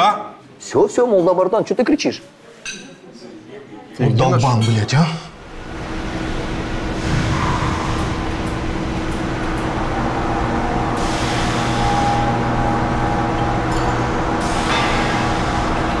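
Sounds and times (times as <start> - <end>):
factory machine hum: 5.3 - 16.0
hiss: 14.4 - 16.0.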